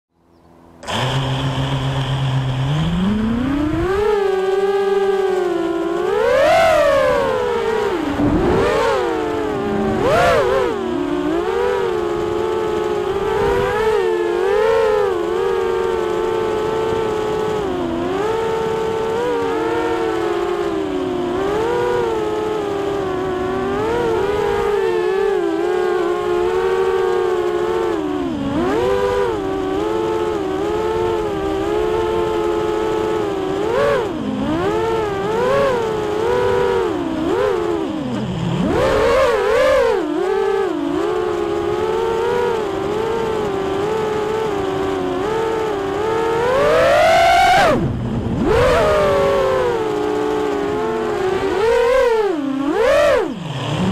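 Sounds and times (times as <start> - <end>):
quadcopter motors whining: 0.4 - 53.9.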